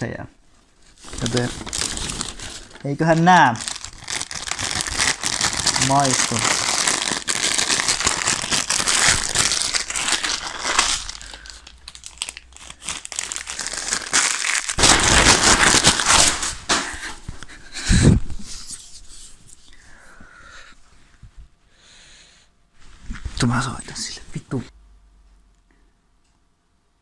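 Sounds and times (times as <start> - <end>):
paper bag crinkling and rustling: 0.6 - 16.8.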